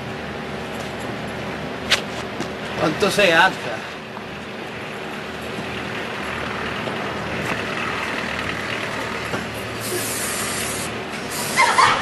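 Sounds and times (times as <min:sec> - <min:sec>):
street background noise: 0:00.0 - 0:12.0
spray can hissing: 0:09.8 - 0:11.7.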